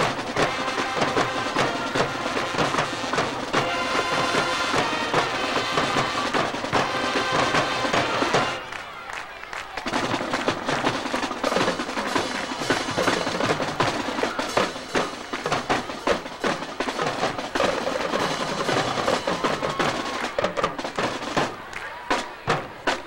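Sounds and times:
snare and tenor drum strokes: 0:00.0 - 0:08.6, 0:09.9 - 0:23.0
held horn notes: 0:00.0 - 0:08.7
marching band playing: 0:00.0 - 0:23.0.

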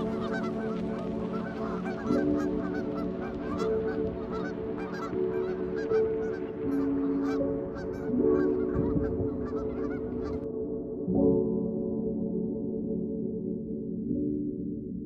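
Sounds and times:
geese honking: 0:00.0 - 0:10.5.

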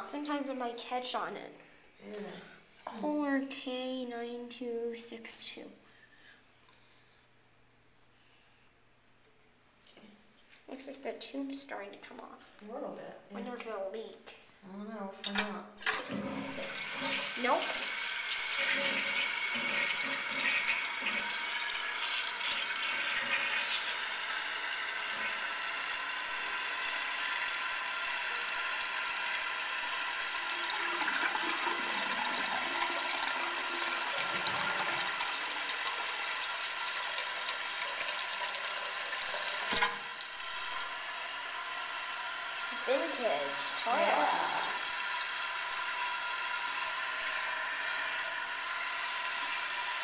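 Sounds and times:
toilet tank refilling hiss: 0:15.8 - 0:50.0.

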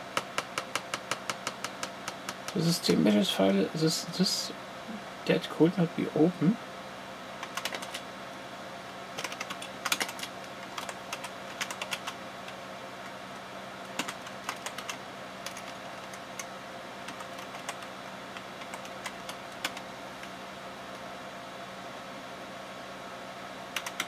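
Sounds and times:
steady low hum: 0:00.0 - 0:24.0
computer keyboard key clicks: 0:00.2 - 0:02.6, 0:07.4 - 0:08.0, 0:09.2 - 0:12.2, 0:13.9 - 0:16.5, 0:23.8 - 0:24.0.

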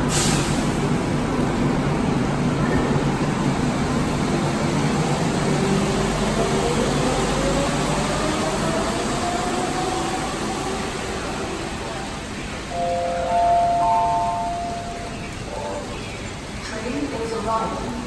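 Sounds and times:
light-rail train running: 0:00.0 - 0:18.0
train whine rising in pitch: 0:12.7 - 0:15.9.

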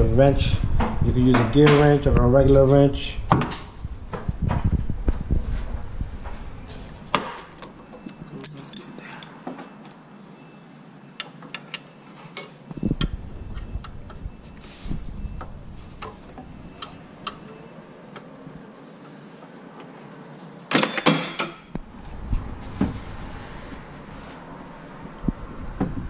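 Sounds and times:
wrench clicking on metal bolt: 0:08.4 - 0:09.4.

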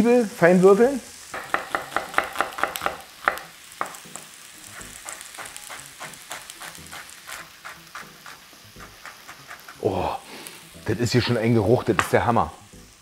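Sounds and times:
vegetable slices sizzling in pan: 0:00.0 - 0:13.0
knife chopping onion on wooden board: 0:01.4 - 0:04.0, 0:04.9 - 0:09.8.

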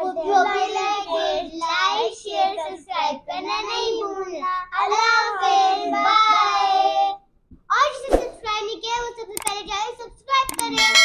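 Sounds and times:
children chanting sing-song: 0:00.0 - 0:07.2.

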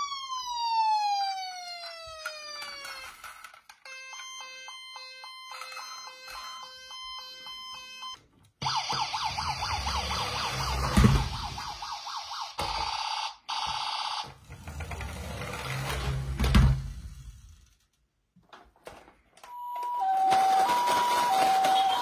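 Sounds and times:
warbling yelp siren: 0:00.0 - 0:03.2, 0:03.9 - 0:14.4, 0:19.8 - 0:22.0
two-tone toy siren: 0:00.0 - 0:14.4, 0:19.5 - 0:22.0.

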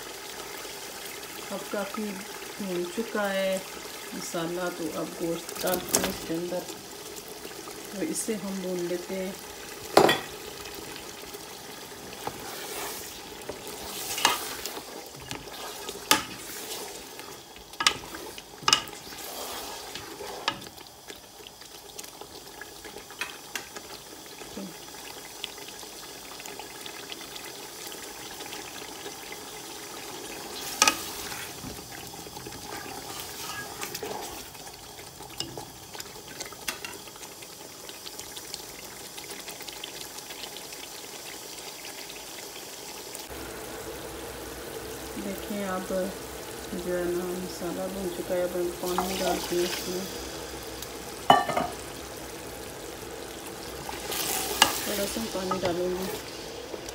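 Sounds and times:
meat sizzling in sauce: 0:00.0 - 0:56.9.

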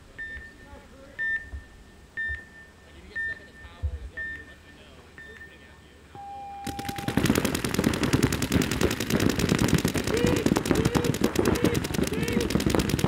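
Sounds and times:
rapid paintball marker fire: 0:06.7 - 0:13.0.

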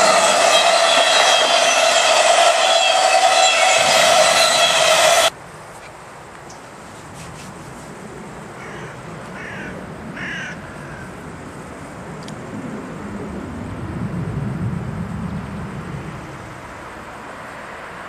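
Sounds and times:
diesel locomotive engine rumble: 0:00.0 - 0:05.4.

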